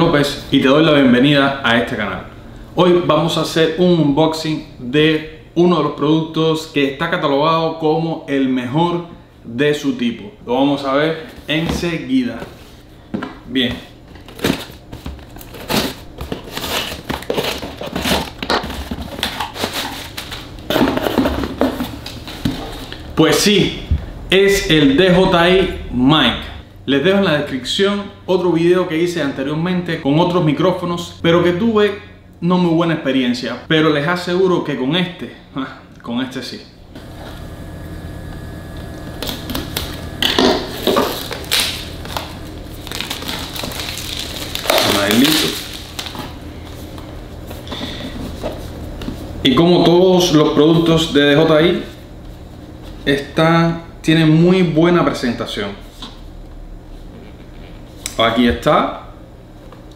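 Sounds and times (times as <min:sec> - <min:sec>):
cardboard flaps tearing and crinkling: 0:15.3 - 0:22.7, 0:40.6 - 0:46.3
knife cutting packing tape: 0:39.2 - 0:46.2.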